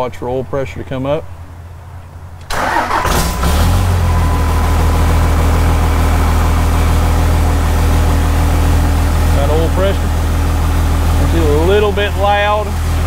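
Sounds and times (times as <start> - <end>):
diesel engine idling loudly: 2.6 - 13.0.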